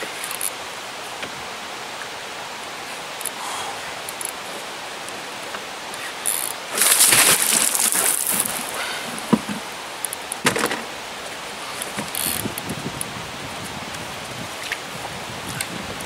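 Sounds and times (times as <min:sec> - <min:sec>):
hiss of moving water: 0:00.0 - 0:16.0
fish splashing and thrashing: 0:06.2 - 0:10.8.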